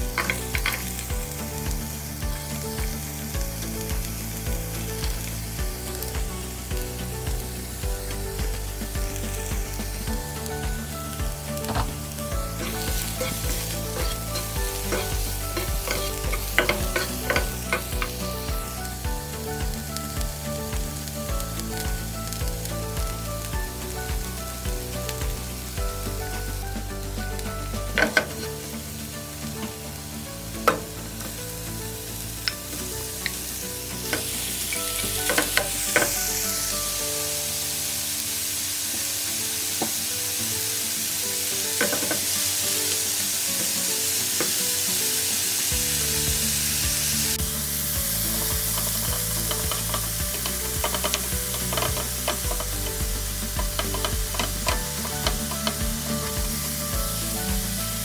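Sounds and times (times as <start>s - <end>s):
meat and onion sizzling in pan: 0.0s - 58.0s
spatula scraping and tapping pan: 11.6s - 18.2s, 48.2s - 56.4s.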